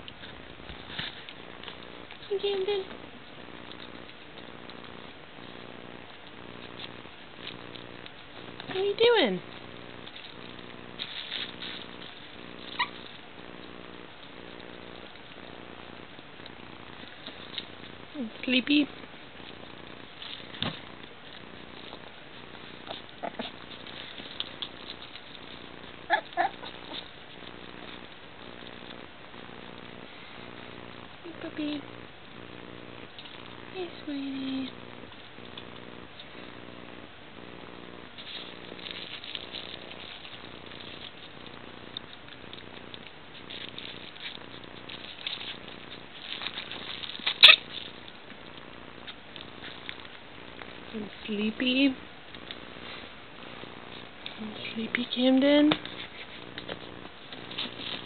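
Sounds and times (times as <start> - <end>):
puppies scratching on bedding: 0.0 - 58.0
soft low rumble: 0.0 - 58.0
puppies yipping: 10.4 - 13.2, 20.2 - 28.0, 42.6 - 48.0.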